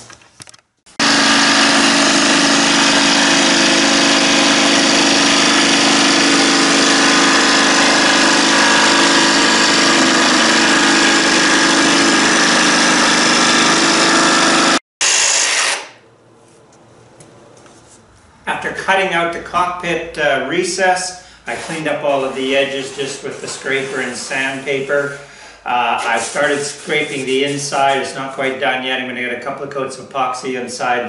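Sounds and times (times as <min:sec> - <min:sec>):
jigsaw cutting wood: 0:01.0 - 0:16.0.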